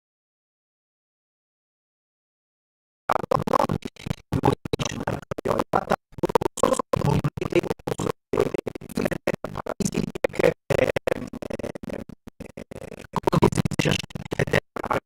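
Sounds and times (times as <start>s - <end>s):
garbled stuttering audio: 3.1s - 15.0s.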